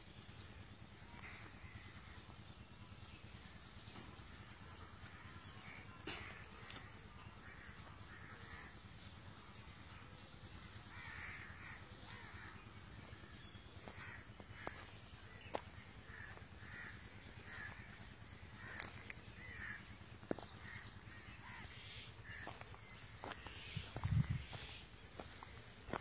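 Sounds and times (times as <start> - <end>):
faint crows cawing: 0.0 - 26.0.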